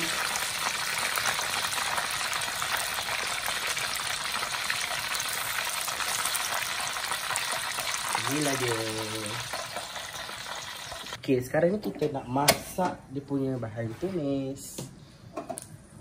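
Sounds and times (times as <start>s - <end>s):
chicken frying in oil: 0.0s - 11.2s.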